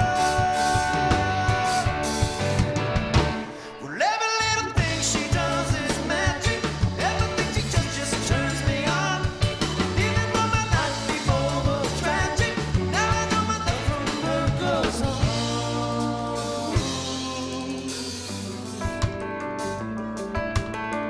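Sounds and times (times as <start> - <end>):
person singing lead vocal: 0.0 - 2.5, 3.4 - 18.9
drum kit: 0.0 - 3.8, 4.5 - 21.0
rock band playing: 0.0 - 21.0.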